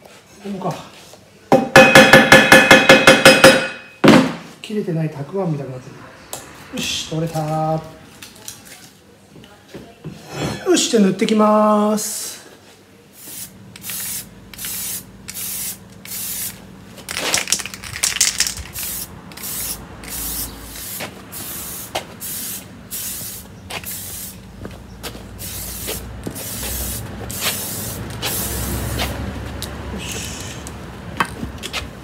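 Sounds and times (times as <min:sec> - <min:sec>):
spray can hissing: 0:13.2 - 0:24.5, 0:25.3 - 0:29.2.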